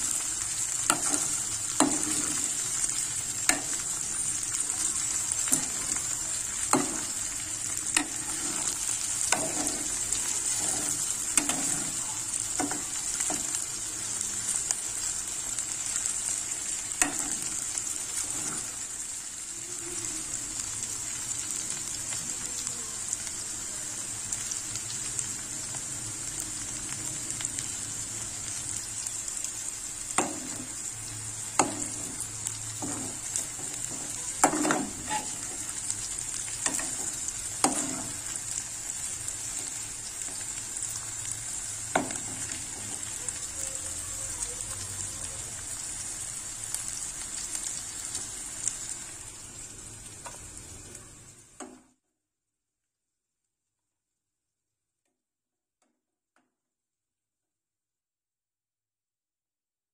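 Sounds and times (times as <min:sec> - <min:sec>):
okra sizzling in a pan: 0:00.0 - 0:52.0
spoon scraping a metal pan: 0:07.9 - 0:12.0, 0:32.8 - 0:35.6.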